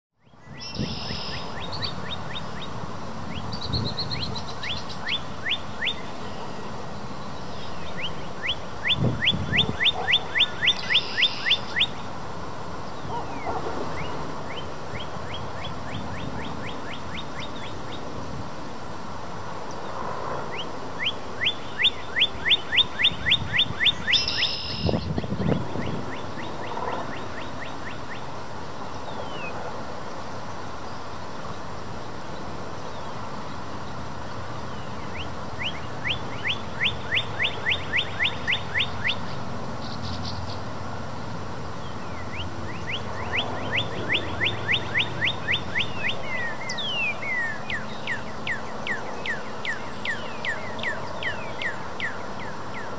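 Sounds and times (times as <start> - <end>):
bird singing whistles: 0.5 - 2.4, 21.0 - 26.2, 42.3 - 52.2.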